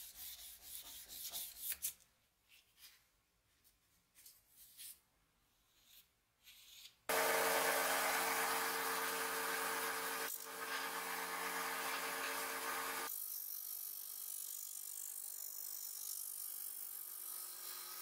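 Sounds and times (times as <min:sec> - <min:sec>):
disc sander motor hum: 0:07.1 - 0:13.1
sander grinding steel hiss: 0:07.1 - 0:13.1.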